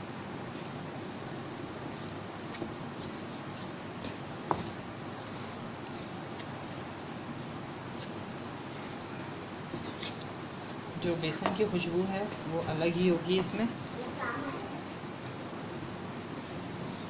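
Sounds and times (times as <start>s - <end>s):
spatula scraping in frying pan: 1.2s - 17.0s
spatula knocking on pan: 11.4s - 11.7s.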